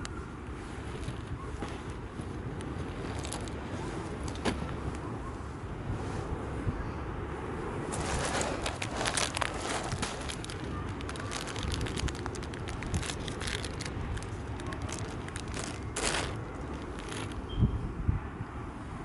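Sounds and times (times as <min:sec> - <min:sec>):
waves rumbling: 0:00.0 - 0:17.5
pebbles rattling and hissing: 0:02.7 - 0:04.4, 0:07.9 - 0:17.5.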